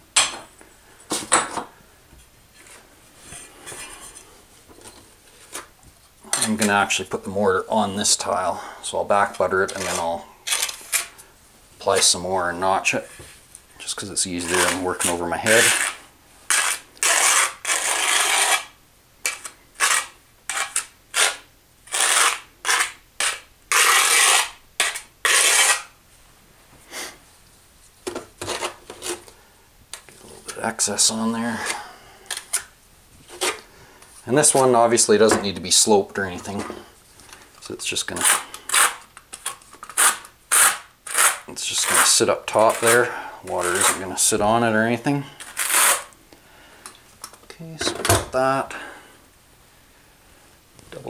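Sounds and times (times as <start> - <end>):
trowel scraping mortar: 9.2 - 11.1, 14.4 - 25.9, 38.1 - 44.1, 45.4 - 46.1.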